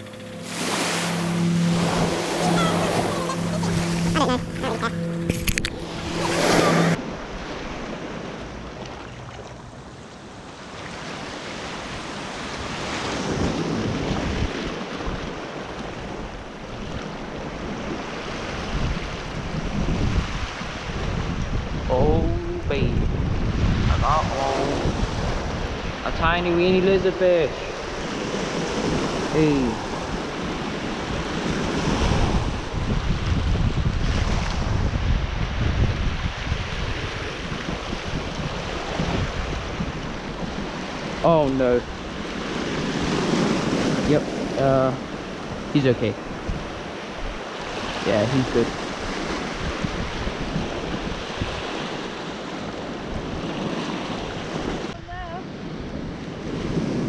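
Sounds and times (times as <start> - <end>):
small waves washing on shore: 0.0 - 57.0
wind buffeting microphone: 12.0 - 41.2, 41.8 - 57.0.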